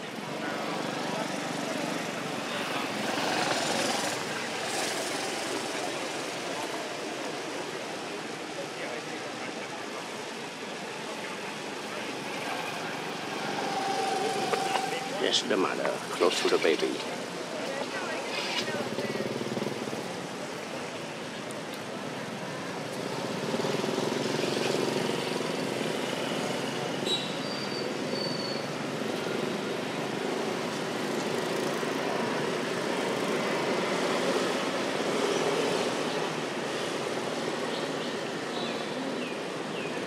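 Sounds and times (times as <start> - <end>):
road traffic passing: 0.0 - 40.0.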